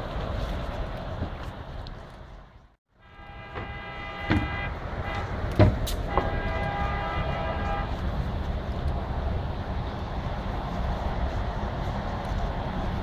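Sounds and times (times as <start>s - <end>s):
low outdoor rumble: 0.0s - 13.0s
horn blasts: 2.9s - 8.0s
sharp knocks: 3.4s - 6.8s.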